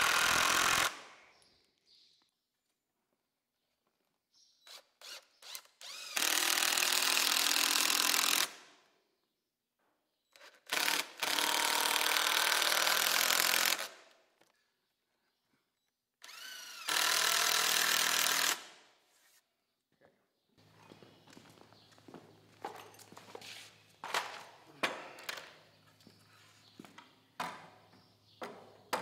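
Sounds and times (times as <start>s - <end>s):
cordless drill whining into wood: 0.0s - 1.1s, 4.6s - 8.6s, 10.3s - 14.0s, 16.2s - 18.8s.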